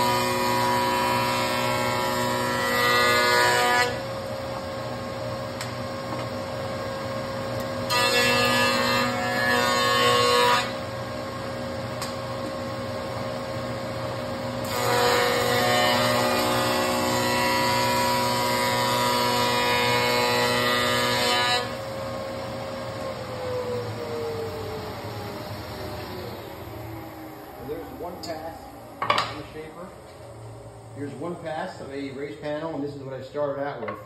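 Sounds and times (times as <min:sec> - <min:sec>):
dust collector running: 0:00.0 - 0:33.7
whine of running spindle: 0:21.6 - 0:33.9.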